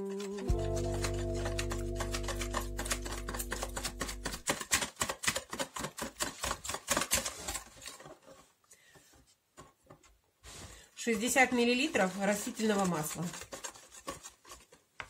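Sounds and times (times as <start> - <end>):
whisk beating eggs in a bowl: 0.6 - 7.3, 11.4 - 14.7.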